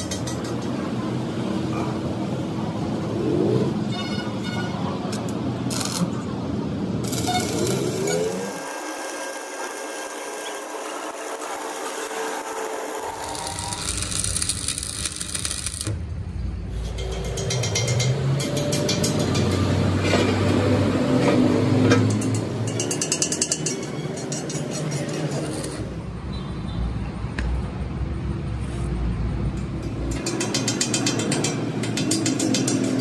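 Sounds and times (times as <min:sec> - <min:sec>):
welding electrode crackling: 0:05.2 - 0:06.2, 0:07.0 - 0:16.1
cutting torch hissing: 0:12.5 - 0:15.9.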